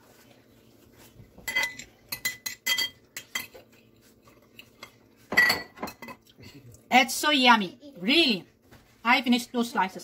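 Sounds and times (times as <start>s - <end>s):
fork clinking on ceramic plate: 1.5s - 3.6s.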